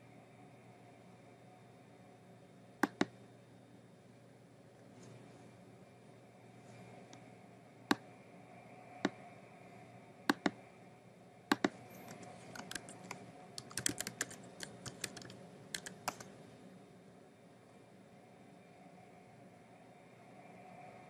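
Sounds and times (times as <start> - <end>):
computer keyboard typing: 2.8 - 3.1, 10.3 - 10.6, 11.5 - 16.3.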